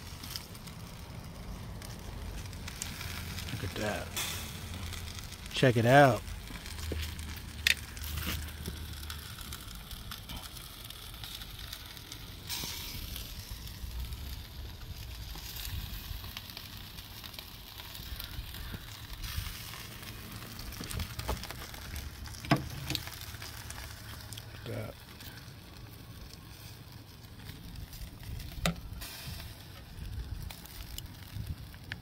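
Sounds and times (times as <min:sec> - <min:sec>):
chicken sizzling on grill: 0:00.0 - 0:32.0
fat popping: 0:20.3 - 0:23.2.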